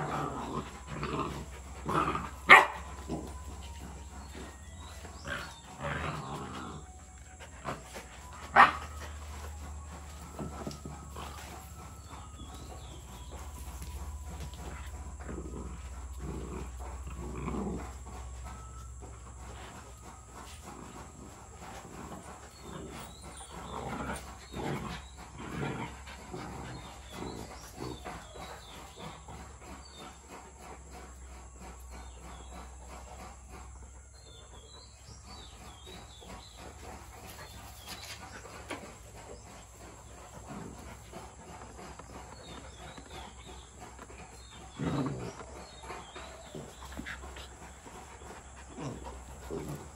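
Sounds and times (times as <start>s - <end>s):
dogs scuffling: 0.0s - 31.9s
dogs vocalizing: 0.0s - 49.9s.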